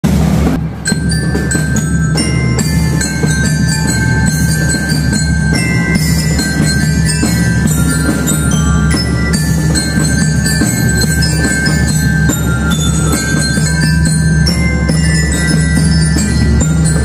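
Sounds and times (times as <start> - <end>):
bell lyres playing bright melody: 0.6 - 17.0.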